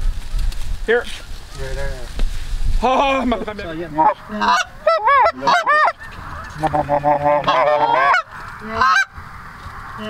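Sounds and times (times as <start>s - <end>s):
geese honking: 3.6s - 9.2s.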